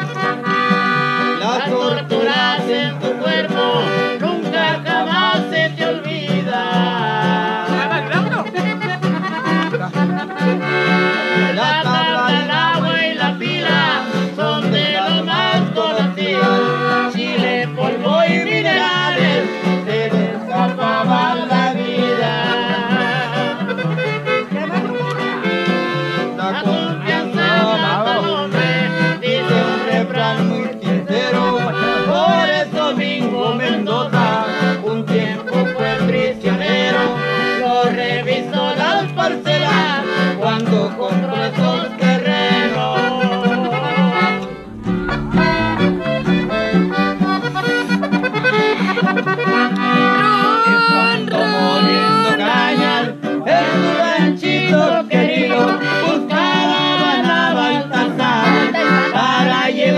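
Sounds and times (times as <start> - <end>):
button accordion melody: 0.0 - 5.6, 6.9 - 33.2, 33.8 - 59.8
guitar: 0.0 - 59.9
steady bass rhythm: 44.1 - 48.8.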